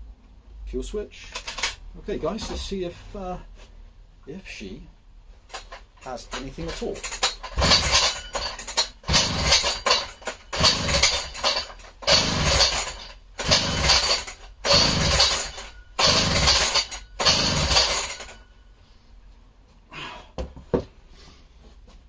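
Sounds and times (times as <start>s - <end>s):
chainsaw engine turning over: 6.7s - 18.4s.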